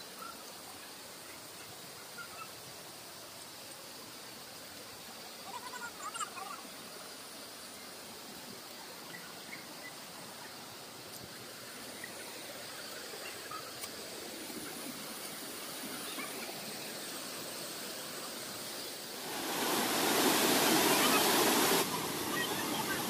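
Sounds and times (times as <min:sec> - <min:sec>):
waterfall rushing: 0:10.9 - 0:23.0.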